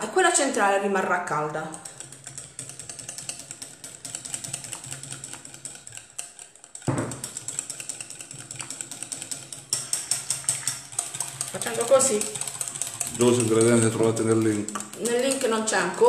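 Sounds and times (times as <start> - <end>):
whisk ticking against glass bowl: 0.0 - 16.0
dull knock: 6.9 - 7.2.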